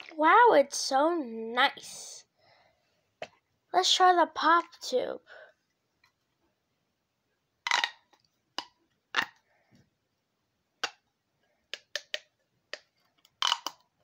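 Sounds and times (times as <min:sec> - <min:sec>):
plastic tube toy popping: 0:07.6 - 0:09.5, 0:10.8 - 0:14.0.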